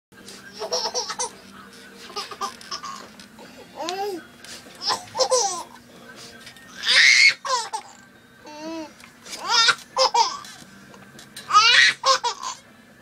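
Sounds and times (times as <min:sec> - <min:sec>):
baby giggling: 0:00.6 - 0:01.4, 0:02.1 - 0:03.1, 0:04.8 - 0:05.7, 0:08.5 - 0:10.4, 0:11.5 - 0:12.6.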